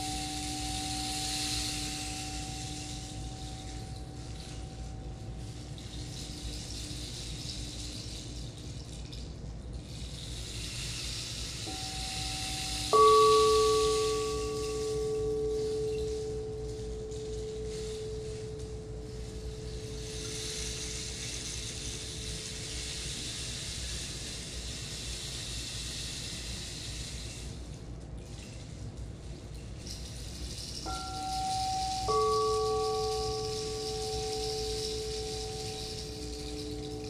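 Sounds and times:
soft held tone: 0:00.0 - 0:08.0, 0:11.6 - 0:23.6, 0:30.1 - 0:37.0
singing bowl ringing: 0:00.0 - 0:09.0, 0:11.5 - 0:23.6, 0:29.8 - 0:37.0
hiss of flowing water: 0:10.3 - 0:27.8.

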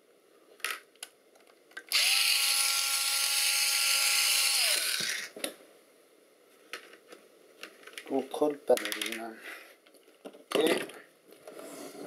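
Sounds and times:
electric screwdriver whining: 0:01.9 - 0:05.4.

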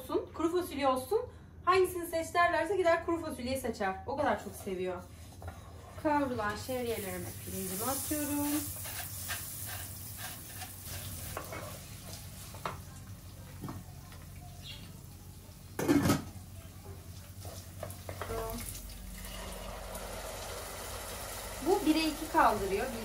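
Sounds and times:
food sizzling in oil: 0:06.6 - 0:12.6, 0:17.0 - 0:23.0.

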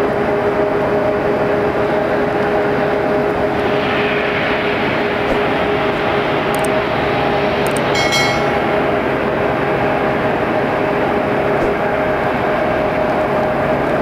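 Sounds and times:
jet aircraft drone: 0:00.0 - 0:14.0
steady humming tones: 0:00.0 - 0:14.0
high chime: 0:08.0 - 0:09.1.

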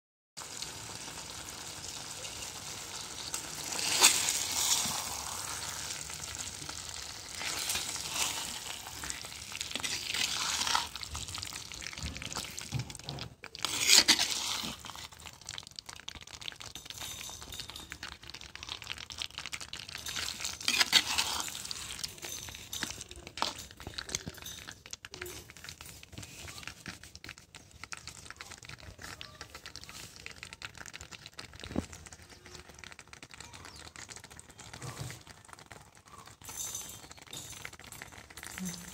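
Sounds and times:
gravy sizzling in a pot: 0:00.4 - 0:38.9
steel spoon scraping a pot: 0:03.2 - 0:15.3, 0:16.6 - 0:24.8.

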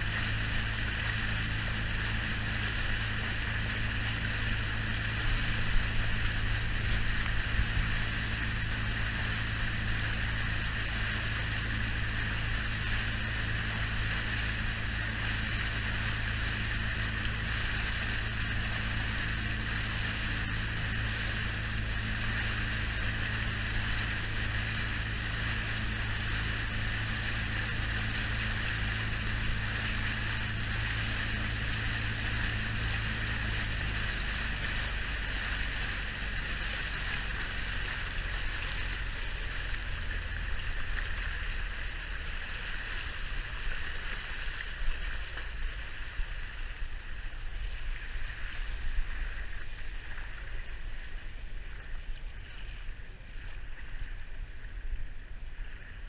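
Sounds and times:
wind on microphone: 0:00.0 - 0:42.0
outboard motor running: 0:00.0 - 0:56.0
water rushing along hull: 0:00.0 - 0:56.0
water splashing and slapping: 0:00.0 - 0:56.0.

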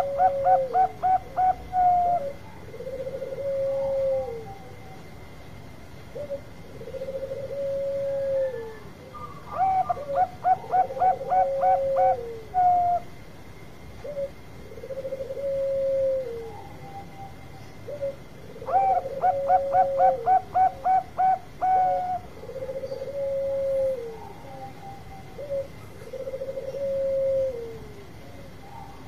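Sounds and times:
low drawn-out coos: 0:00.0 - 0:04.9, 0:06.2 - 0:13.1, 0:21.6 - 0:29.0
dove cooing song: 0:00.0 - 0:05.3, 0:06.1 - 0:13.2, 0:14.0 - 0:29.0.

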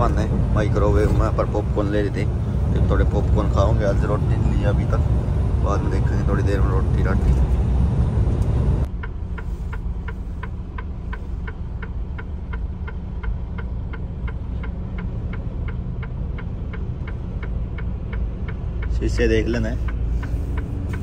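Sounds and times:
truck engine rumbling: 0:00.0 - 0:21.0
turn signal clicking: 0:08.3 - 0:21.0.

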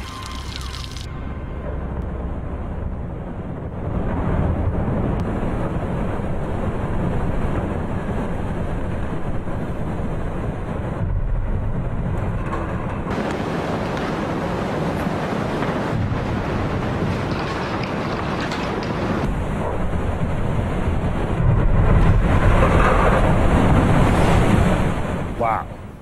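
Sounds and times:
snow and air rushing: 0:13.1 - 0:26.0.

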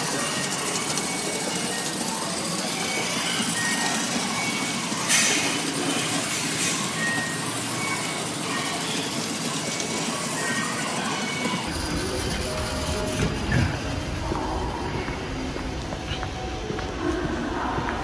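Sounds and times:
toy trains whirring on plastic track: 0:00.0 - 0:13.6.

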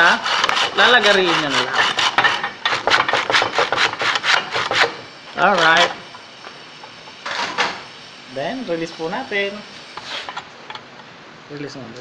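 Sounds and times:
hand saw cutting plastic: 0:00.0 - 0:05.0.

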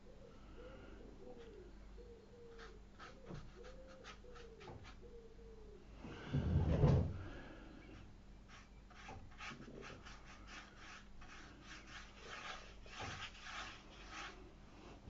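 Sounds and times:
paintbrush scratching on paper: 0:02.5 - 0:05.1, 0:08.0 - 0:14.5.

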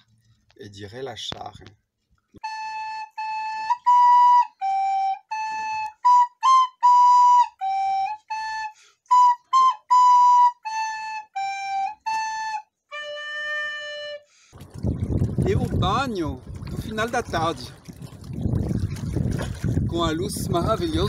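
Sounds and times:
recorder playing a melody: 0:02.4 - 0:14.3.

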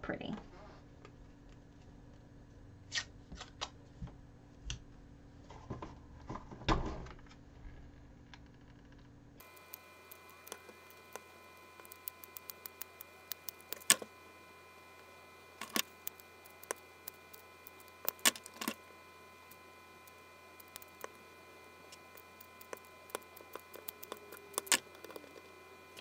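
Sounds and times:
faint high whine: 0:07.7 - 0:26.0.

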